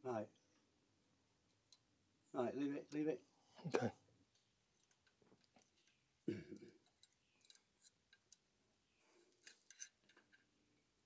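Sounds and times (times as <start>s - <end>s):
small metal clicks and ticks: 1.4s - 1.9s, 2.8s - 3.2s, 4.3s - 11.0s.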